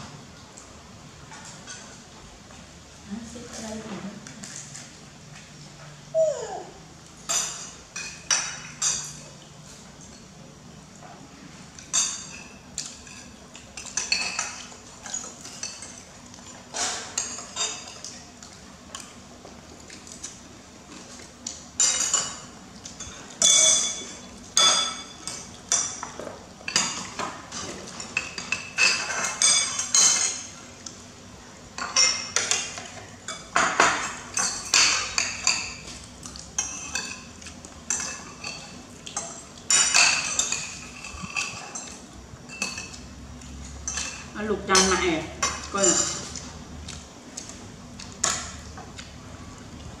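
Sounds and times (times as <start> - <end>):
spoons clinking on ceramic plates: 7.3 - 9.2, 11.8 - 18.2, 21.8 - 30.6, 31.8 - 36.0, 36.6 - 43.1, 43.8 - 46.4.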